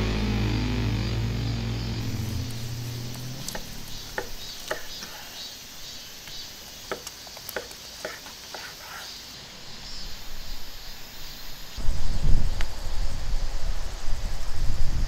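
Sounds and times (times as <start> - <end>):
loud low rumble: 0.0 - 4.7
insects chirring: 0.0 - 15.0.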